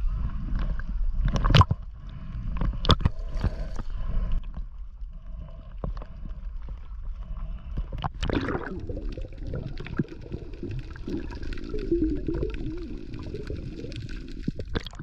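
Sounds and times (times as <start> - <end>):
sea water sloshing: 1.2 - 15.0
water splashes: 8.1 - 15.0.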